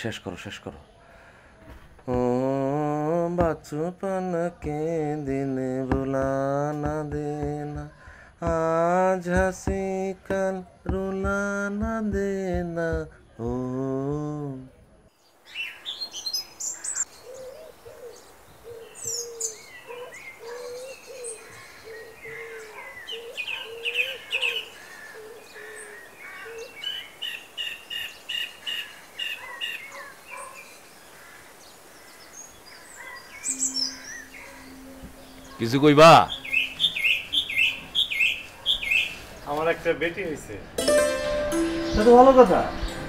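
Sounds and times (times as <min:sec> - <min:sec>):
birds chirping and trilling: 0:15.1 - 0:43.0
low bird call: 0:33.2 - 0:39.4
quick repeated bird notes: 0:33.5 - 0:39.5.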